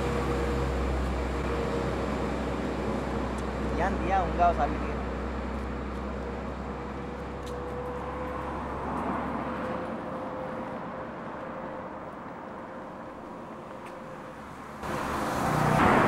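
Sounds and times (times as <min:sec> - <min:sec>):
motor vehicle passing: 0:14.4 - 0:16.0.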